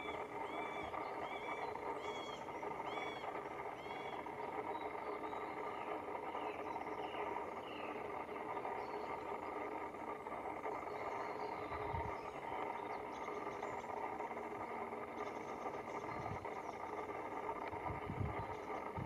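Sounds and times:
woodpecker calling: 0:00.0 - 0:09.5.

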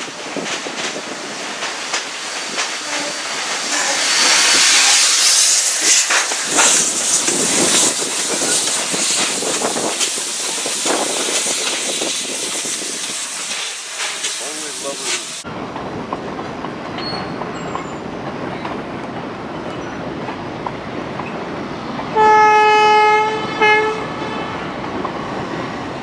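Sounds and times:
loud hiss of steam: 0:00.0 - 0:15.5
clatter of moving train: 0:00.0 - 0:26.0.

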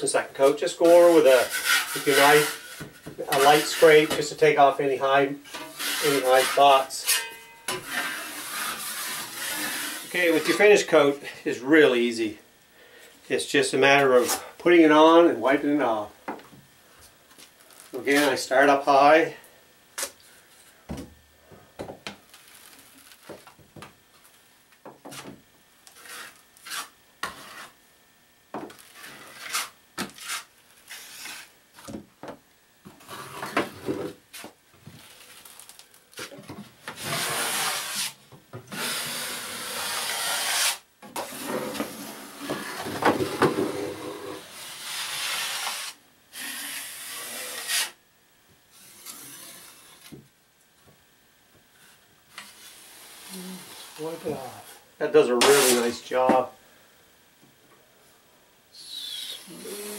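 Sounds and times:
drywall knife scraping metal: 0:00.5 - 0:04.3, 0:05.5 - 0:10.8, 0:26.0 - 0:27.8, 0:28.9 - 0:31.5, 0:37.0 - 0:42.9, 0:43.7 - 0:48.0, 0:48.8 - 0:50.1, 0:55.4 - 0:55.9.

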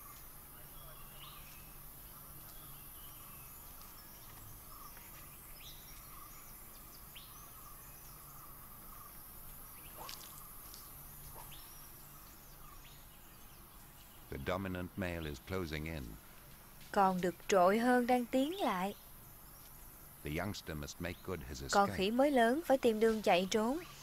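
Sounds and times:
bird chirps: 0:00.0 - 0:16.4, 0:17.0 - 0:24.0
insects shrilling: 0:14.4 - 0:24.0.

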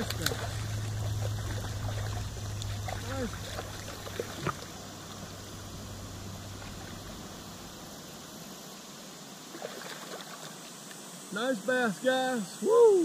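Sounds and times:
low rumble: 0:00.0 - 0:08.2
river water flowing over rocks: 0:00.0 - 0:11.4.

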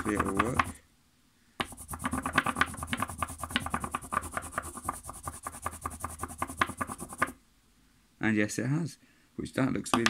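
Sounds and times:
crayon scratching on paper: 0:00.0 - 0:00.8, 0:01.6 - 0:07.4.

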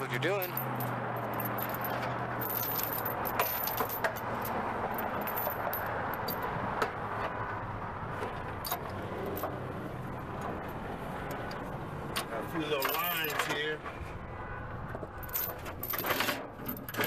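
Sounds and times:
steel chain clinking and rattling: 0:00.3 - 0:06.6, 0:12.7 - 0:13.6, 0:15.2 - 0:17.0.

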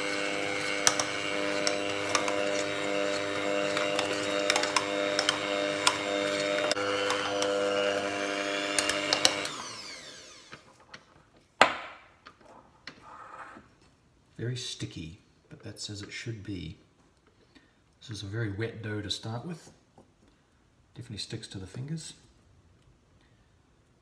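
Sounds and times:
electric hand mixer running: 0:00.0 - 0:10.7
motor winding down: 0:00.0 - 0:10.7.

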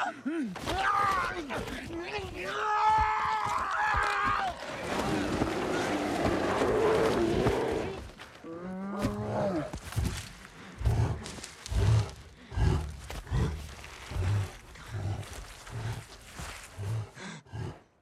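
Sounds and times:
bear growling and roaring: 0:03.4 - 0:18.0
deep low huffs: 0:04.6 - 0:18.0.

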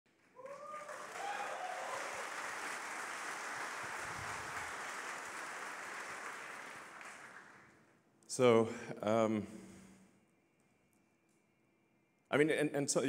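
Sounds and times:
audience applause: 0:00.1 - 0:07.7
person cheering: 0:00.4 - 0:02.3.

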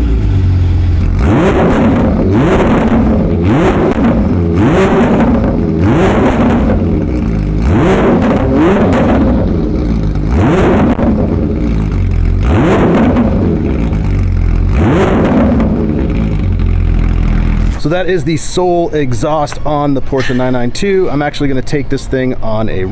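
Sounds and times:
car engine revving: 0:00.0 - 0:18.0.

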